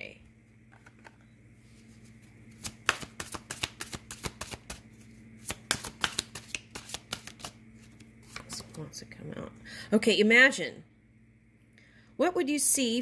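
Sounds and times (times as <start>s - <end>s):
cards being shuffled: 0.7s - 8.8s.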